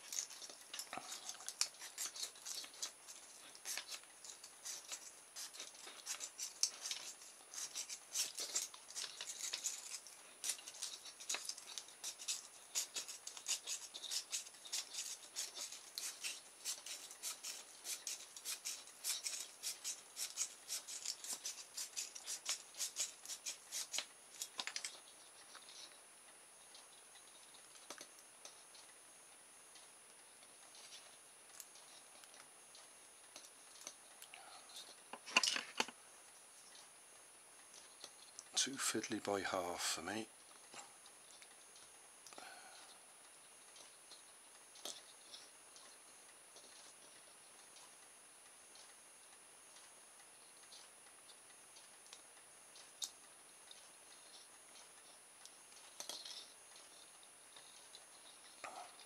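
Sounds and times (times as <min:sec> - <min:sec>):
wire scratching over plastic: 0:00.0 - 0:25.0.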